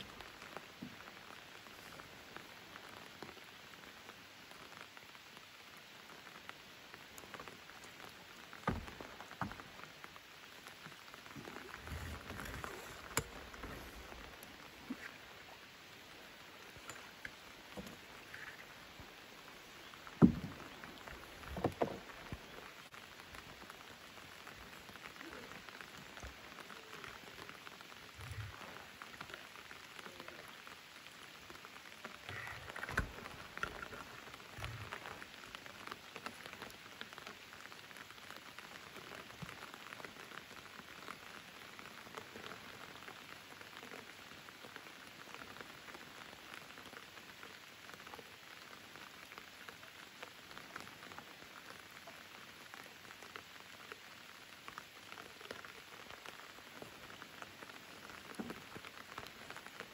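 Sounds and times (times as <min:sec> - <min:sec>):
rain hissing on water: 0:00.0 - 0:59.9
dull knocks: 0:20.2 - 0:20.6.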